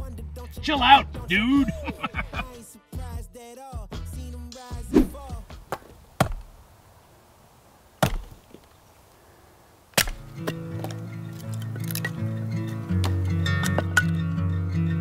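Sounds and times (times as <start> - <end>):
acoustic guitar music: 0.0 - 2.6, 10.2 - 15.0
hip hop music: 0.0 - 5.7
axe chopping wood: 5.0 - 6.6, 8.0 - 8.6, 9.9 - 11.0.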